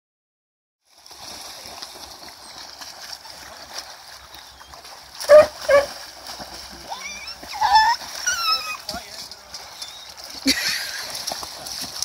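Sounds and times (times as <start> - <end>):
water splashing and sloshing: 0.8 - 12.0
dog barking: 5.3 - 5.9.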